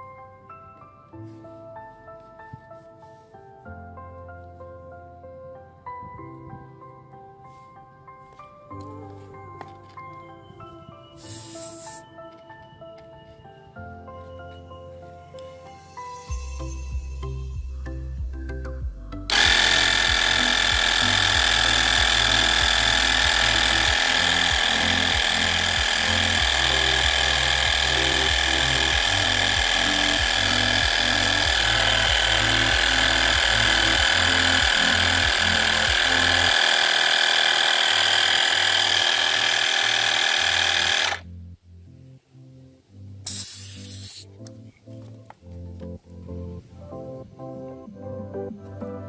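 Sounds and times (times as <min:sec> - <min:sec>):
electric air pump whining: 0:11.2 - 0:12.1, 0:19.3 - 0:41.3.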